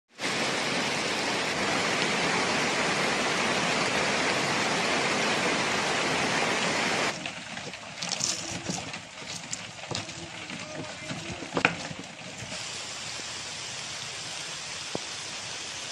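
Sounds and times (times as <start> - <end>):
heavy rain hissing: 0.1 - 15.9
pestle crushing in wooden mortar: 7.2 - 12.5.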